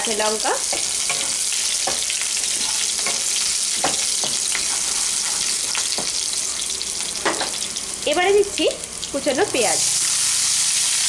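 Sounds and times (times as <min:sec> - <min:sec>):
garlic and chillies sizzling in oil: 0:00.0 - 0:11.0
wooden spatula scraping pan: 0:01.0 - 0:06.2.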